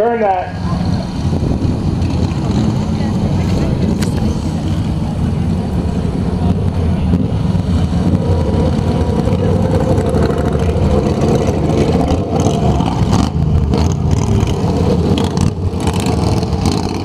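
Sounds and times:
lawn mower engines racing: 0.0 - 17.0
mower passing close: 0.6 - 17.0.

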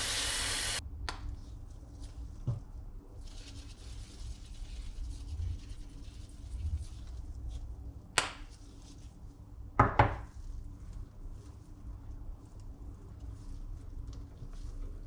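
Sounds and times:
eggplant slices rustling in bowl: 1.4 - 7.9.

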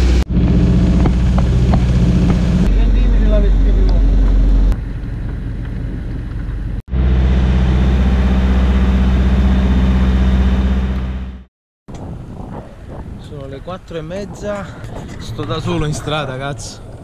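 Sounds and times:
boat engine droning: 0.0 - 11.5.

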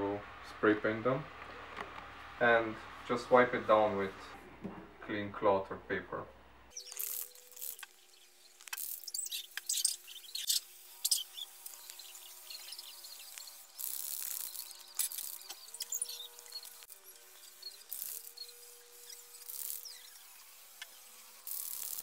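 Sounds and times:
faint steady hum: 0.0 - 22.0
aerosol spray can hissing: 6.7 - 22.0.

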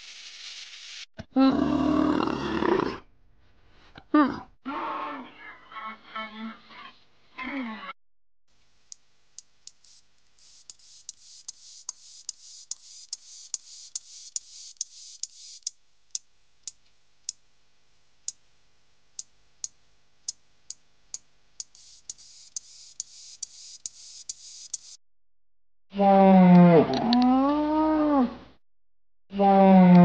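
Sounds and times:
grasshopper stridulating: 9.4 - 16.8, 21.6 - 25.0.

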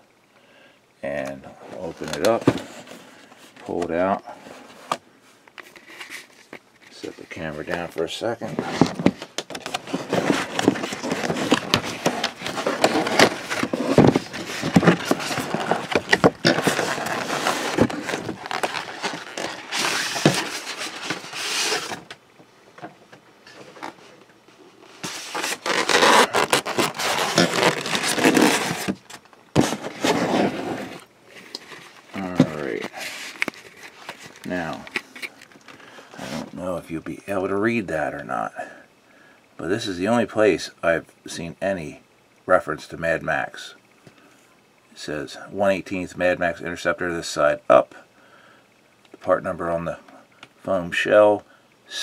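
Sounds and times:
packaging scraping and rustling: 5.6 - 22.1, 24.8 - 36.6.

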